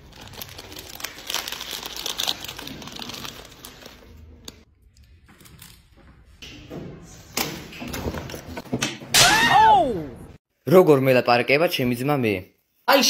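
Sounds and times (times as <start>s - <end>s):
snack wrapper crinkling: 0.0s - 4.6s.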